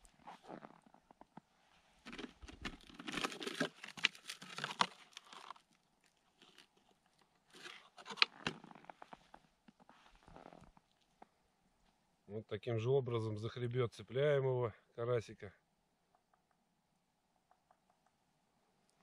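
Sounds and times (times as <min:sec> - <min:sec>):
plastic bottle crinkling: 0:02.0 - 0:09.0.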